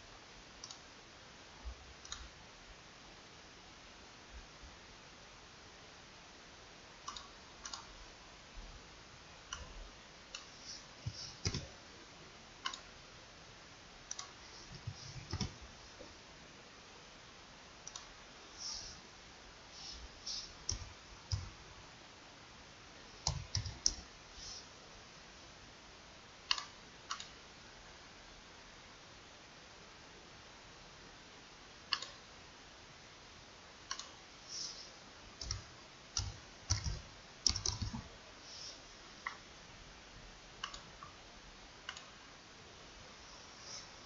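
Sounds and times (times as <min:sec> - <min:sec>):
mouse and keyboard clicks: 0:10.3 - 0:11.7, 0:14.1 - 0:15.6, 0:19.8 - 0:21.5, 0:23.2 - 0:24.6, 0:31.9 - 0:32.2, 0:35.4 - 0:38.1, 0:40.6 - 0:41.2.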